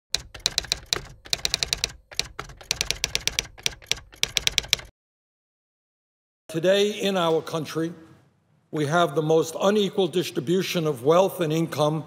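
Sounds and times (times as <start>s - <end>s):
typewriter keys clicking: 0.1s - 4.9s.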